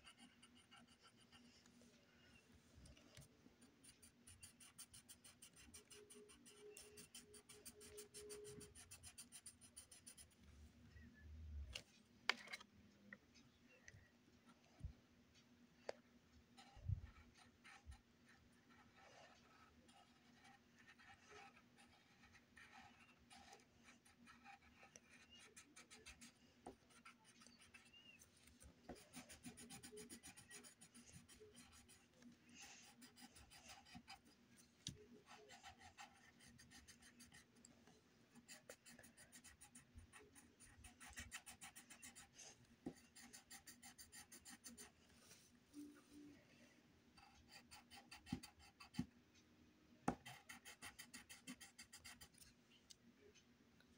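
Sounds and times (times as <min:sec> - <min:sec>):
pencil scratching on paper: 0:00.0 - 0:01.6, 0:03.1 - 0:10.4, 0:16.6 - 0:34.4, 0:35.2 - 0:37.6, 0:38.3 - 0:45.0, 0:47.2 - 0:49.1, 0:50.1 - 0:52.5.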